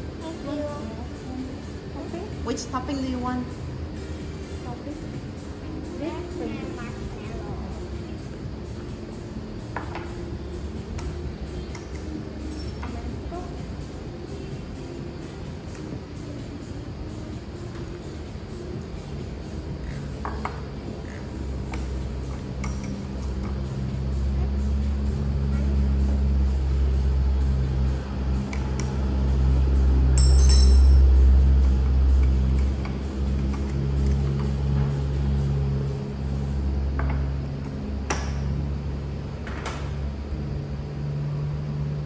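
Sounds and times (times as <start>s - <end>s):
low steady hum: 0.0s - 42.0s
metal spoon clinking glass: 30.2s - 31.1s.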